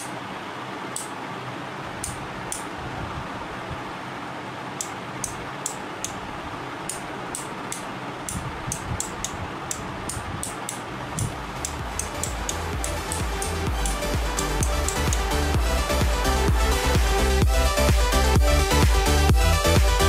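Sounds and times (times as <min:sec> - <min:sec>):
relays clicking: 0:06.8 - 0:15.3.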